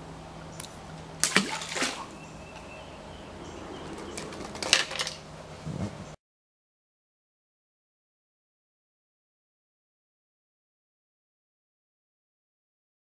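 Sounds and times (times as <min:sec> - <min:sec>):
water splashing: 0:00.6 - 0:02.5.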